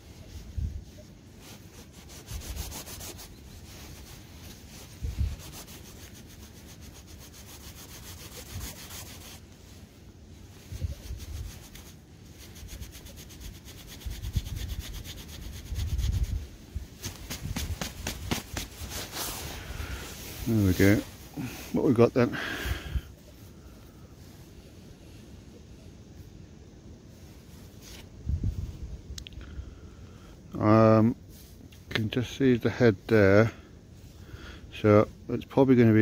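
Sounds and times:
scraping through loose soil: 0:00.0 - 0:24.6
fine scratches: 0:00.0 - 0:25.2, 0:27.1 - 0:28.1
dull bumps: 0:17.0 - 0:19.2.

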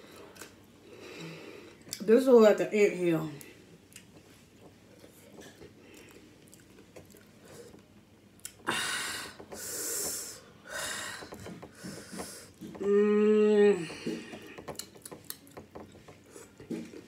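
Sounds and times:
woman breathing heavily and sniffing: 0:08.6 - 0:12.7
woman humming mmm: 0:12.8 - 0:14.3.

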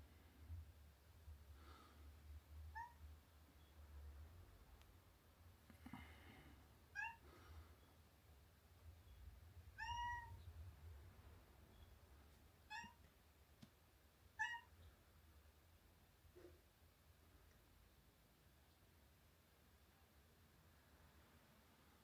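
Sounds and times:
faint low hum: 0:00.0 - 0:22.0
cat meowing: 0:02.7 - 0:03.0, 0:06.9 - 0:07.2, 0:09.8 - 0:10.5, 0:12.6 - 0:13.0, 0:14.4 - 0:14.8.

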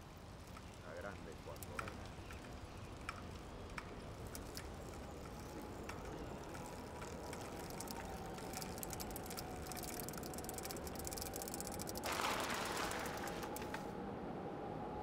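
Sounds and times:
bicycle freewheel ratchet ticking: 0:00.2 - 0:13.8.

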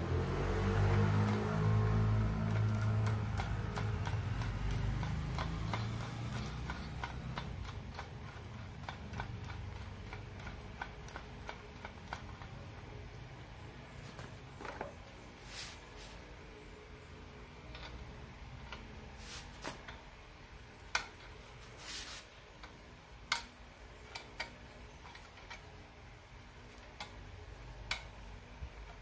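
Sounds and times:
light ratcheting clicks: 0:01.3 - 0:12.6, 0:22.6 - 0:25.7, 0:26.7 - 0:29.0.

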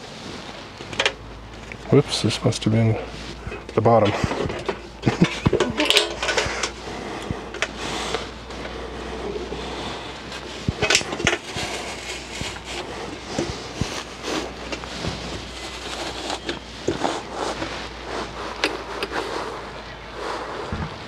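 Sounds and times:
sheet metal casing clattering: 0:03.4 - 0:06.8.

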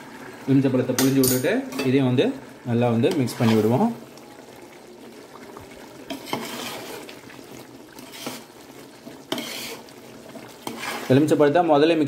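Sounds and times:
spatula scraping a metal pot: 0:03.1 - 0:03.8, 0:06.0 - 0:07.2, 0:07.9 - 0:11.3
spatula stirring rice in pot: 0:03.1 - 0:03.9, 0:06.0 - 0:11.4.

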